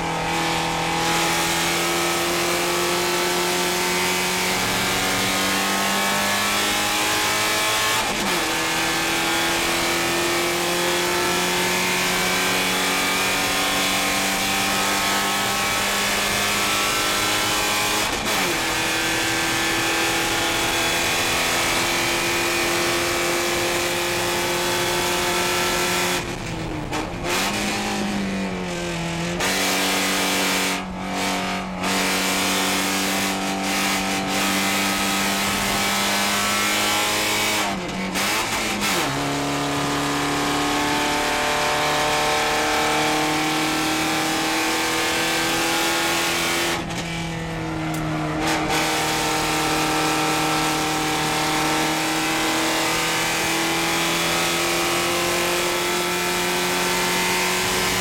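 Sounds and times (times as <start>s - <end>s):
race car engine at full throttle: 0.0s - 58.0s
road and wind noise: 0.0s - 58.0s.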